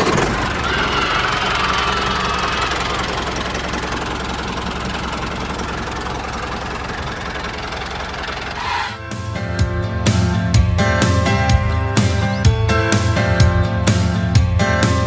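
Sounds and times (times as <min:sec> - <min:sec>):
small tractor engine chugging: 0:00.0 - 0:09.2.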